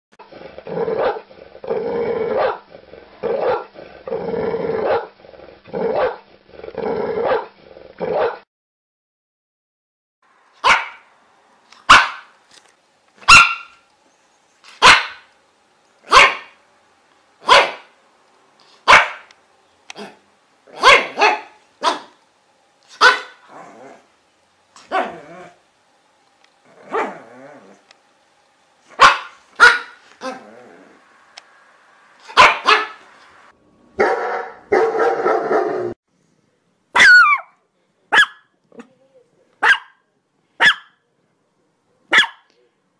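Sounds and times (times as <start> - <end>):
dog barking: 1.0 - 1.2, 2.4 - 2.6, 3.4 - 3.7, 6.0 - 6.2, 7.2 - 7.5, 8.1 - 8.4, 10.6 - 11.0, 11.9 - 12.3, 13.2 - 13.8, 14.8 - 15.3, 16.1 - 16.6, 17.4 - 17.9, 18.8 - 19.3, 20.0 - 22.2, 22.9 - 23.4, 24.9 - 25.2, 26.9 - 27.2, 29.0 - 30.4, 32.3 - 33.0, 34.0 - 35.8, 37.0 - 38.5, 39.6 - 40.0, 40.6 - 41.0, 42.1 - 42.5.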